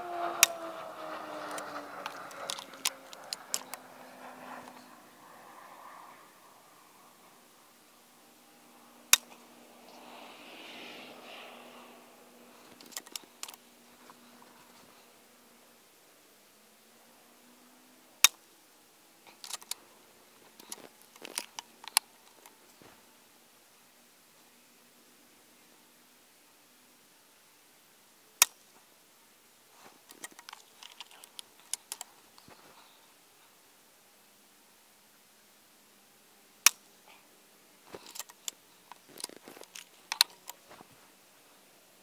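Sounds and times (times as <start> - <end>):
metallic clicks of rifle action: 1.4 - 4.8, 12.6 - 14.3, 19.3 - 19.8, 20.4 - 22.6, 29.9 - 32.6, 37.9 - 40.7.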